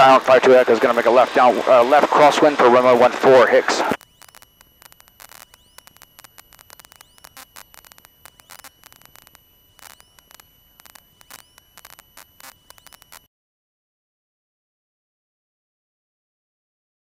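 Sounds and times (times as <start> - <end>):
static crackles and clicks: 0.0 - 13.3
steady high whine: 0.0 - 13.3
rising electronic chirp: 4.0 - 13.3.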